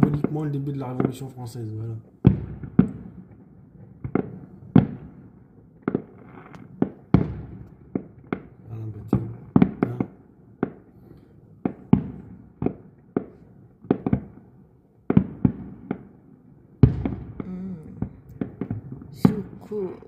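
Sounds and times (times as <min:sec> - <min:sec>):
firework shells bursting: 0:02.2 - 0:14.4, 0:16.8 - 0:20.0.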